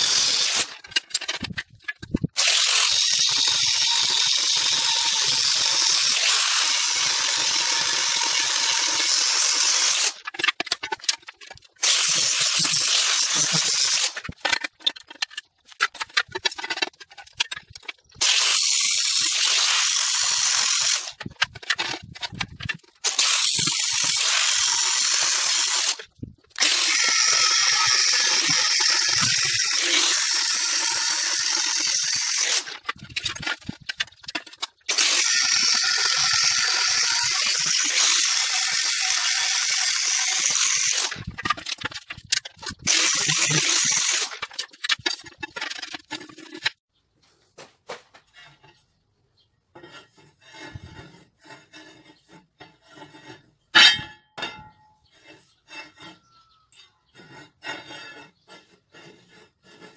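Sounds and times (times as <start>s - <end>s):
angle grinder grinding steel: 0.0s - 46.8s.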